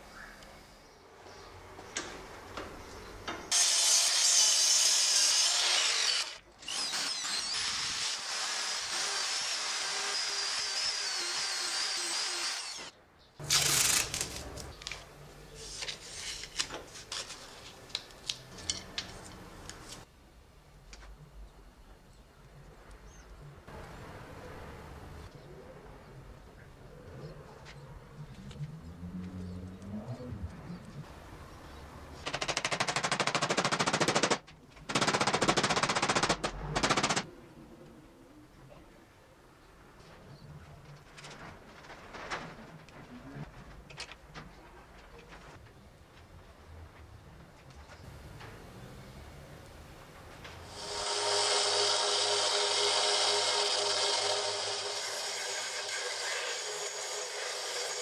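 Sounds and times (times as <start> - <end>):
drill whining: 3.5 - 12.9, 50.7 - 58.0
loud scraping: 50.6 - 58.0.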